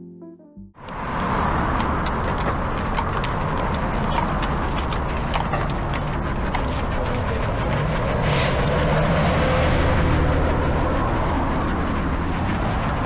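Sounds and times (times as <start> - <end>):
horse hooves clip-clopping on road: 0.8 - 10.0
city traffic hum: 0.8 - 13.0.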